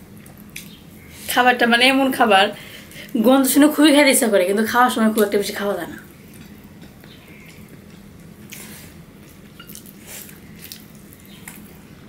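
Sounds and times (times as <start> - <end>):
wet chewing and lip-smacking: 6.2 - 11.8
rice squishing between fingers: 6.2 - 11.9.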